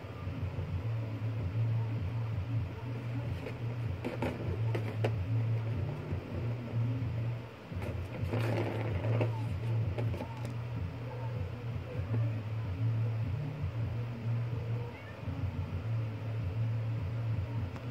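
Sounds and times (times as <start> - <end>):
steady low hum: 0.0 - 17.9
scratching on cardboard: 2.9 - 6.8, 7.8 - 10.6.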